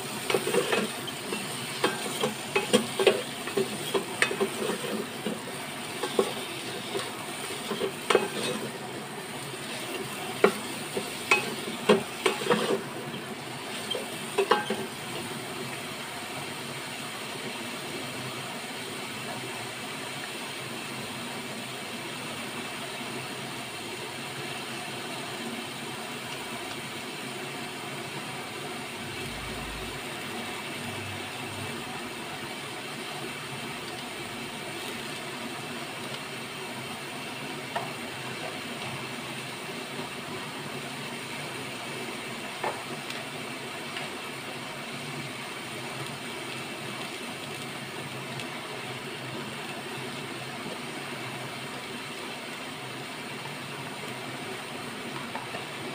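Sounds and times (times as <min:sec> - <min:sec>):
steady sizzle: 0:00.0 - 0:55.9
wooden spatula scraping metal pot: 0:00.1 - 0:08.9, 0:09.6 - 0:14.9.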